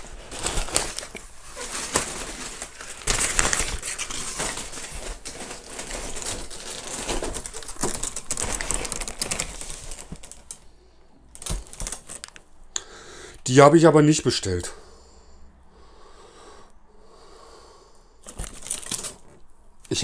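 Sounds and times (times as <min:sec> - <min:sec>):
plastic and cardboard rustling: 0:00.0 - 0:12.5, 0:18.2 - 0:20.0
clicks and knocks of items: 0:11.3 - 0:12.5, 0:18.2 - 0:19.4.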